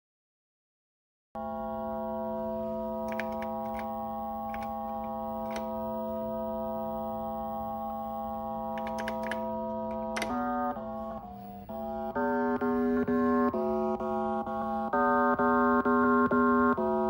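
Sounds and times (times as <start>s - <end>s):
synthesizer buzzy note: 1.4s - 17.0s
keyboard key clicks: 3.0s - 5.8s, 8.7s - 10.5s.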